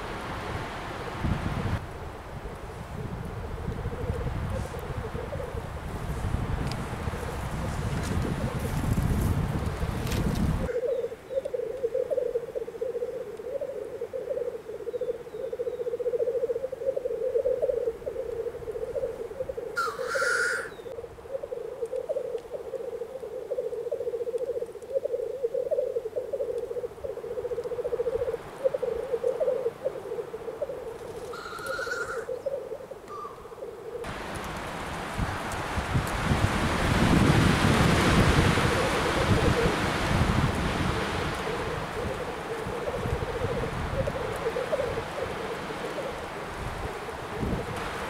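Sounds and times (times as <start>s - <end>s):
grouse bubbling cooing song: 2.4s - 5.8s, 10.6s - 34.1s, 38.2s - 47.8s
grouse harsh hiss: 25.2s - 32.5s.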